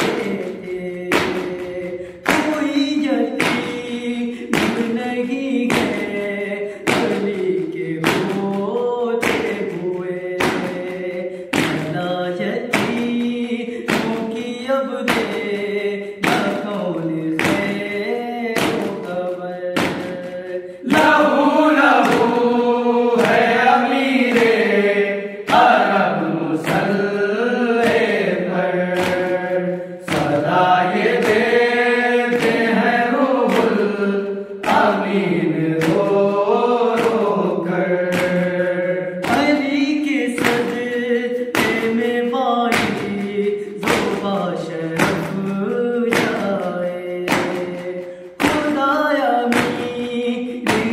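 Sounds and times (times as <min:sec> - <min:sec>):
men chanting in unison: 0:00.0 - 0:50.9
hands slapping on chests: 0:20.9 - 0:27.1, 0:27.8 - 0:37.3, 0:38.0 - 0:39.7, 0:40.3 - 0:42.0.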